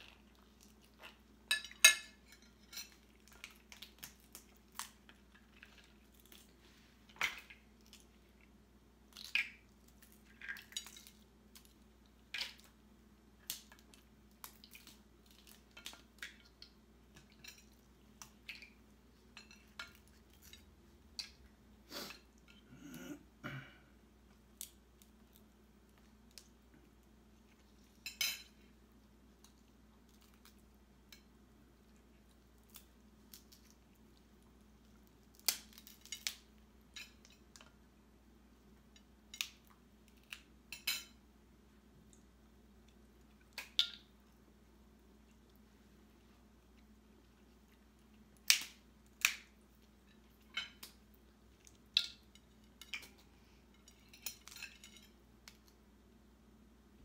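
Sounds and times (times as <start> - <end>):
crab shells cracking: 32.6 - 33.8, 35.0 - 37.7, 43.5 - 44.1, 48.2 - 49.6.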